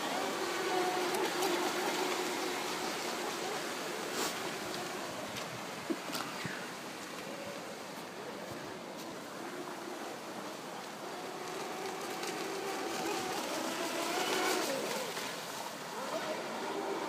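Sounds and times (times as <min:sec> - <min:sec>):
toy jet ski motor whining: 0:00.0 - 0:05.0, 0:09.4 - 0:17.0
water rushing: 0:00.0 - 0:17.0.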